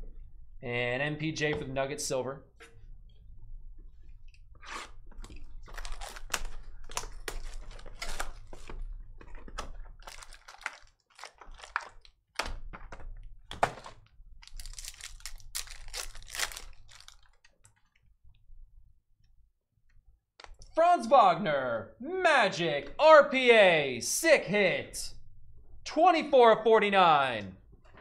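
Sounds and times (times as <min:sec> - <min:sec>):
foil wrappers crinkling and tearing: 0:05.3 - 0:08.9, 0:10.0 - 0:12.2, 0:14.4 - 0:17.5.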